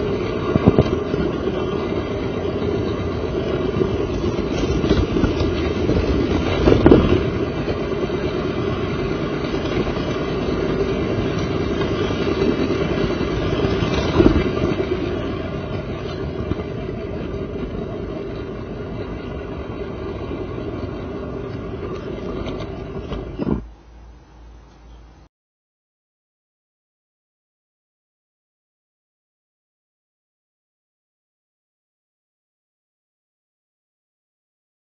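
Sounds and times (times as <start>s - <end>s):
track clacks: 0.0s - 23.7s
model train rumbling whir: 0.0s - 25.3s.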